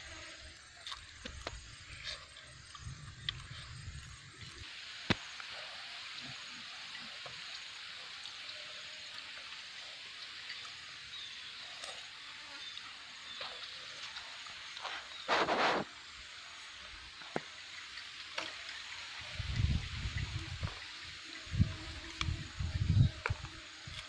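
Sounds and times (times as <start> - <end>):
outdoor background hiss: 0.0 - 24.0
faint ticks: 22.1 - 22.4.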